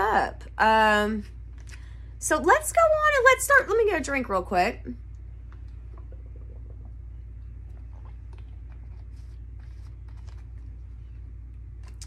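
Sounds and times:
low electrical hum: 0.0s - 12.0s
person swallowing a drink: 5.5s - 9.1s.

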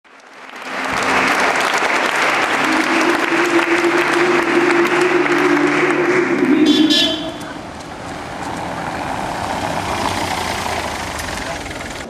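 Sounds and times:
crowd applauding: 0.0s - 8.8s
steady low tone: 0.7s - 7.7s.

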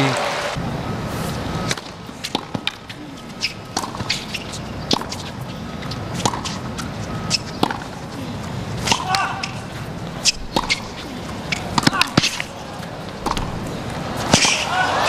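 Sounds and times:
tennis racket hitting ball: 1.7s - 15.0s
crowd murmur: 2.6s - 3.8s, 6.8s - 15.0s.

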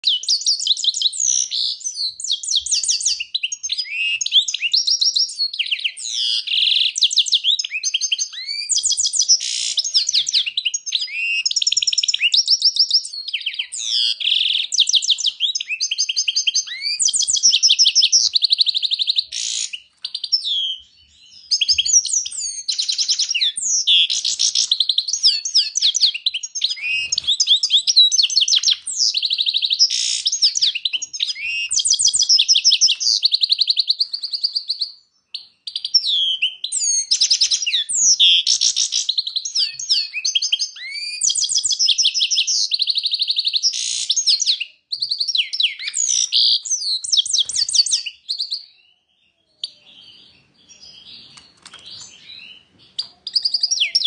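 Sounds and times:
finch twittering and trilling: 0.0s - 54.0s.

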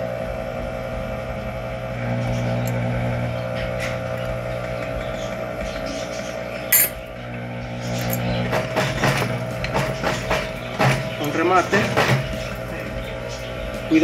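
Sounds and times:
sewing machine motor running: 7.8s - 13.3s.

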